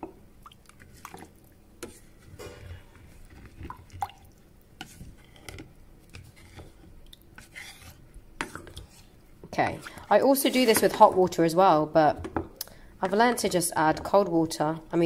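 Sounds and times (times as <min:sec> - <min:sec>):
rice and water sloshing: 0:00.4 - 0:11.2
spoon tapping and scraping pan: 0:09.6 - 0:11.4, 0:12.1 - 0:14.6.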